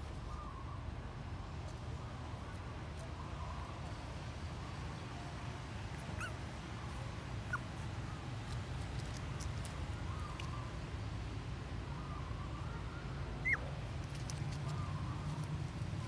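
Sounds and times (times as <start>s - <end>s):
puppies whimpering: 6.1s - 6.4s, 13.4s - 13.7s.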